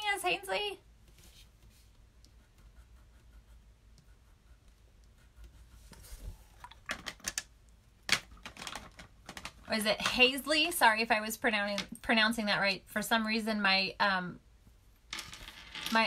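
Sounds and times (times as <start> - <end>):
marker scratching on paper: 1.2 - 6.4.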